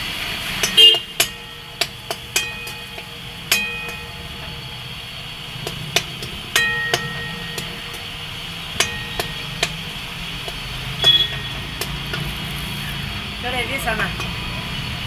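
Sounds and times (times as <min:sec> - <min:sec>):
steady background hiss: 0:00.0 - 0:15.0
metal ladle clanking on pan: 0:00.6 - 0:12.3.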